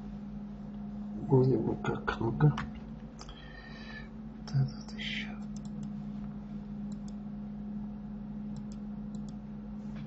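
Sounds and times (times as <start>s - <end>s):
steady low hum: 0.0s - 10.0s
computer mouse clicking: 4.5s - 6.0s, 6.9s - 7.2s, 8.5s - 9.4s.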